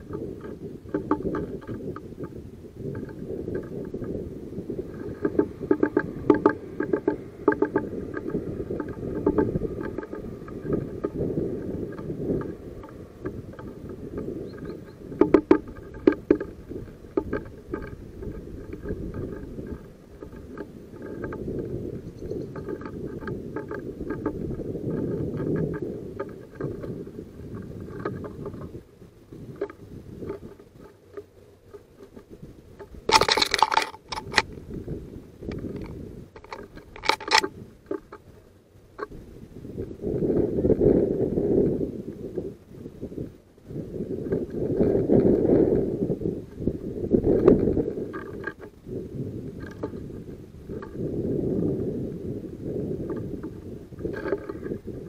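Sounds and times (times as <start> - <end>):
bird beak tapping on wood: 0.1 - 4.1, 4.9 - 26.9
clatter: 29.6 - 34.6, 35.5 - 38.2.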